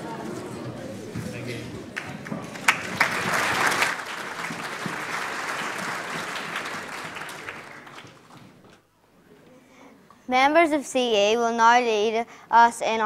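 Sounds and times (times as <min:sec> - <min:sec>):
congregation applauding: 0:01.9 - 0:08.7.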